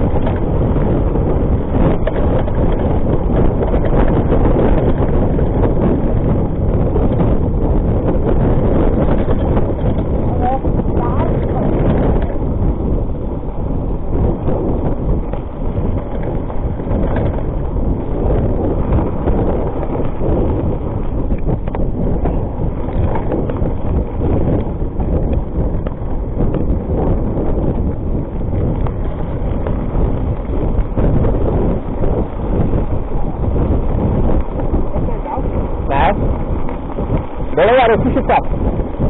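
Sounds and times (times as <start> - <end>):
bike tyres knocking on bumps: 0.0 - 39.0
mountain bike rattling on gravel: 0.0 - 39.0
wind buffeting microphone: 0.0 - 39.0.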